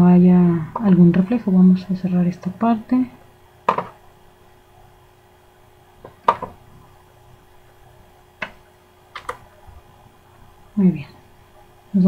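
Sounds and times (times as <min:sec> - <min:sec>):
faint electrical hum: 0:00.0 - 0:12.0
computer mouse clicks: 0:09.2 - 0:09.4.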